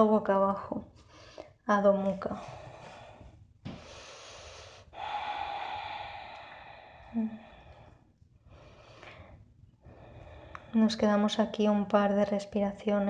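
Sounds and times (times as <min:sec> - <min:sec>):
woman breathing deeply: 0:02.4 - 0:10.8.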